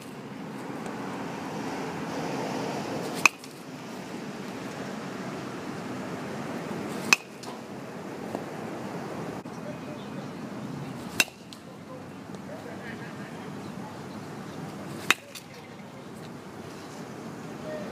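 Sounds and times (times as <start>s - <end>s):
baseball bat cracks: 3.1s - 3.6s, 7.0s - 7.7s, 11.0s - 11.7s, 15.0s - 15.6s.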